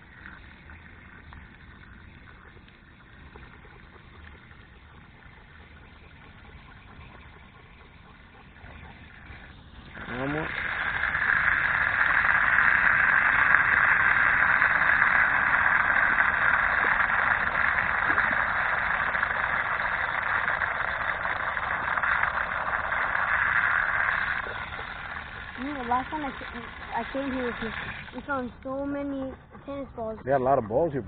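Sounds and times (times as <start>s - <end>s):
water splashing onto mulch: 0.0s - 29.3s
water spraying from a tap: 8.6s - 28.5s.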